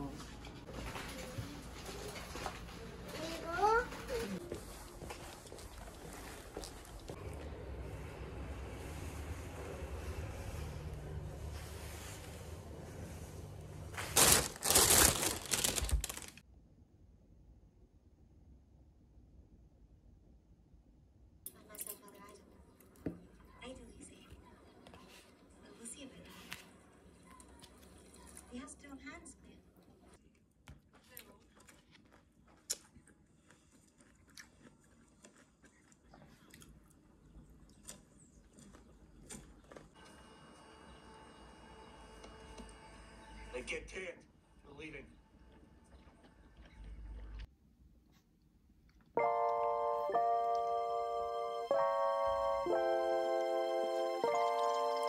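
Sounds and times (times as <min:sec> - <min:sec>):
faint chewing: 0:00.8 - 0:07.5, 0:29.7 - 0:40.2, 0:45.3 - 0:49.2
plastic bag crinkling: 0:13.8 - 0:16.4.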